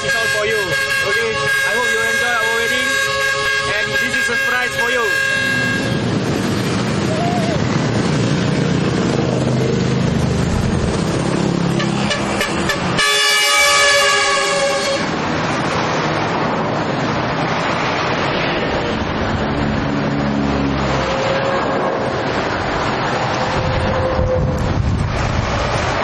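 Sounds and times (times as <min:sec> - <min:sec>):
truck horn blasts: 0:00.0 - 0:06.2, 0:11.7 - 0:15.3
truck engines running: 0:00.0 - 0:26.0.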